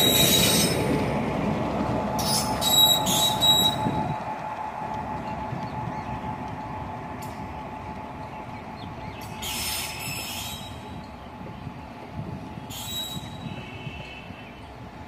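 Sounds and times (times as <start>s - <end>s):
high-pitched wheel squeals: 0.0s - 0.8s, 2.2s - 4.2s, 9.3s - 11.0s, 12.6s - 14.4s
train wheels rumbling on rails: 0.0s - 15.0s.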